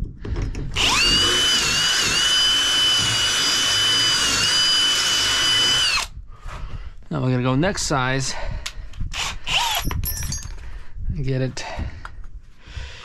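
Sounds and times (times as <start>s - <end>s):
cordless drill whining: 0.7s - 6.1s, 9.1s - 10.0s.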